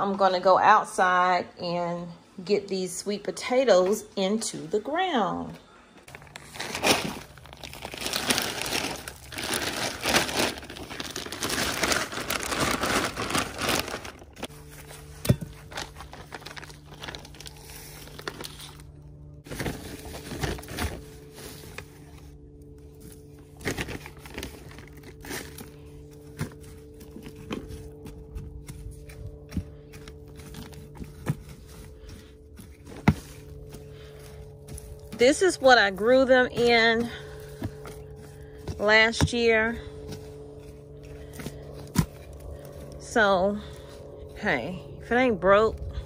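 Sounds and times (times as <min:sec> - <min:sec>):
steady low hum: 0:00.0 - 0:46.0
plastic bag crinkling: 0:06.1 - 0:18.9
hand tool scraping soil: 0:24.8 - 0:45.7.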